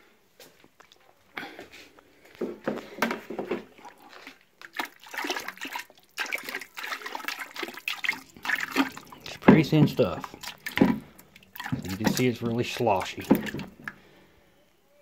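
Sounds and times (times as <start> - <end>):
liquid sloshing in plastic bucket: 2.4 - 14.1.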